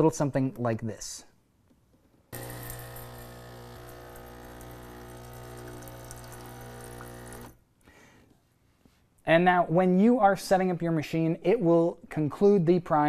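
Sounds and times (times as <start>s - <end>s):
water splashing into metal pitcher: 2.4s - 7.5s
espresso machine pump humming: 2.4s - 7.6s.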